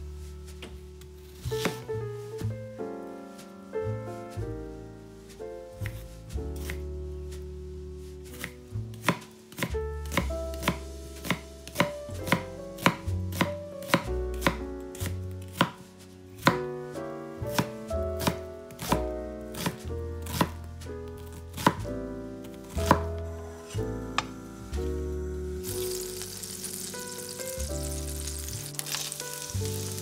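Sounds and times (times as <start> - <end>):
knife chopping on cutting board: 1.6 - 1.9, 5.8 - 6.0, 6.6 - 6.8, 8.3 - 15.8, 17.5 - 20.6, 21.3 - 21.8, 22.8 - 23.1.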